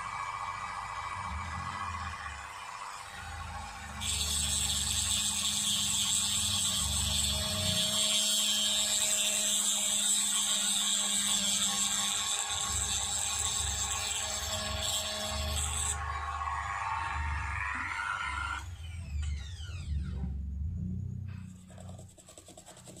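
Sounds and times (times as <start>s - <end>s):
rotary drill whining: 1.7s - 20.0s.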